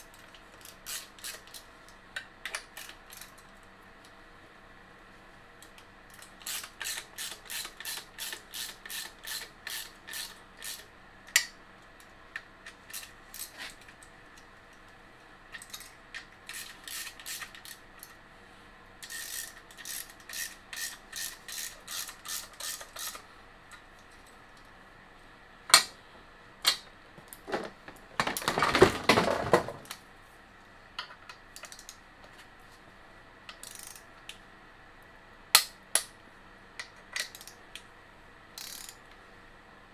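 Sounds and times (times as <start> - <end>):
ratchet wrench clicking: 0.5 - 1.6, 2.5 - 3.4, 6.1 - 11.5, 12.6 - 13.5, 15.6 - 18.1, 19.0 - 23.2, 31.6 - 32.0, 33.5 - 34.1, 36.8 - 37.6, 38.6 - 39.0.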